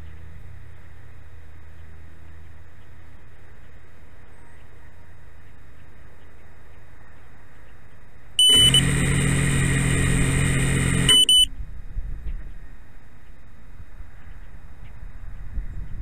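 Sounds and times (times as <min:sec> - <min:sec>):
short high beep: 0:08.4 - 0:08.9, 0:11.1 - 0:11.5
drone motors spinning: 0:08.4 - 0:11.5.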